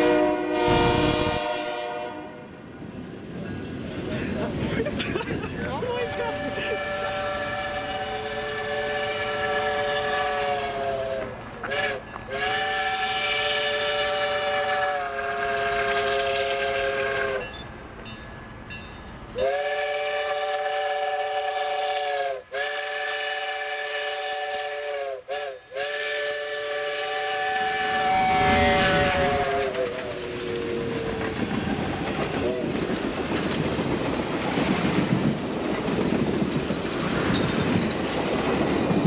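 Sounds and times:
steam locomotive whistle chord: 0:00.0 - 0:02.6, 0:06.0 - 0:18.2, 0:19.4 - 0:30.9
locomotive rumble: 0:00.0 - 0:21.8, 0:25.3 - 0:39.0.

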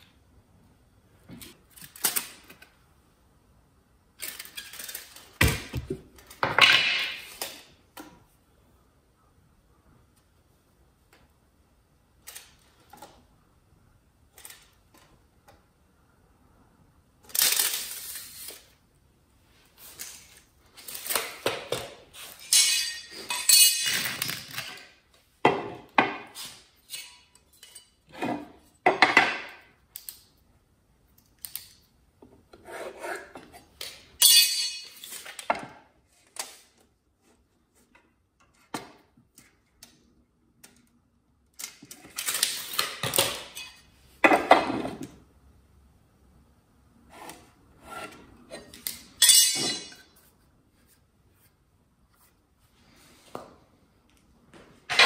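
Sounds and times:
tape measure pulled and retracting: 0:04.2 - 0:05.4, 0:17.3 - 0:18.8.

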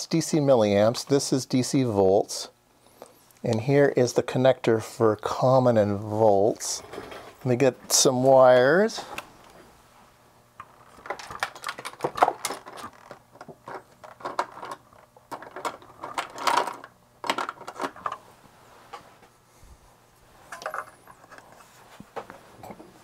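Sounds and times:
wires clicking and rattling: 0:10.6 - 0:18.2.

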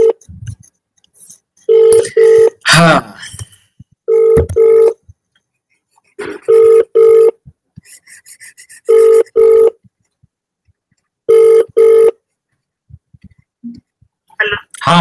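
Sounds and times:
phone ringing: 0:00.0 - 0:00.2, 0:01.7 - 0:02.6, 0:04.1 - 0:05.0, 0:06.4 - 0:07.4, 0:08.9 - 0:09.8, 0:11.3 - 0:12.2.

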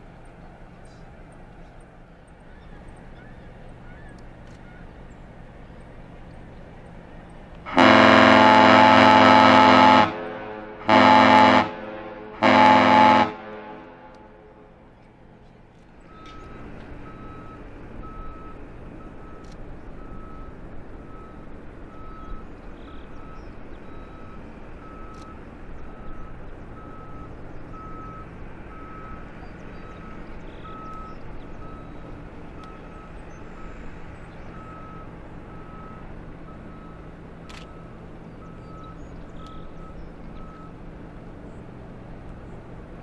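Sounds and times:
low engine hum: 0:00.0 - 0:43.0
sharp clicks: 0:04.1 - 0:04.7, 0:19.1 - 0:20.1, 0:25.0 - 0:25.6, 0:37.4 - 0:40.4
reversing alarm beeping: 0:16.1 - 0:40.9.

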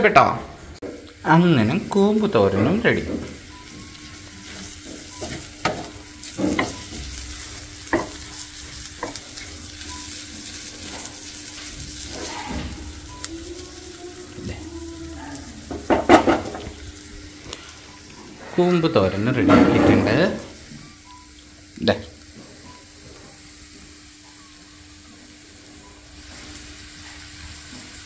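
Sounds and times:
faint sizzle: 0:00.3 - 0:28.0
wooden spatula scraping a pan: 0:10.4 - 0:12.8.

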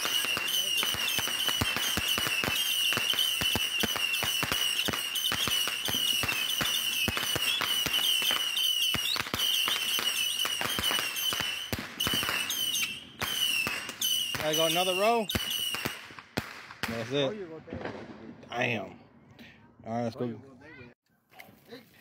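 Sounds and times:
high firework whistle: 0:00.0 - 0:16.2
firework sharp pops: 0:00.0 - 0:18.4.

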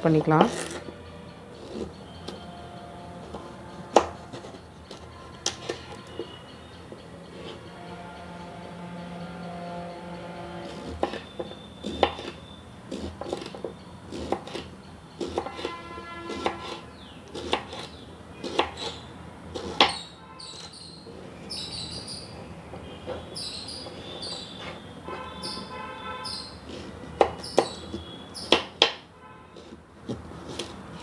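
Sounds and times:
knife chopping on wooden board: 0:03.3 - 0:06.2, 0:10.7 - 0:19.0, 0:19.6 - 0:20.7, 0:26.7 - 0:29.0, 0:29.6 - 0:30.8.

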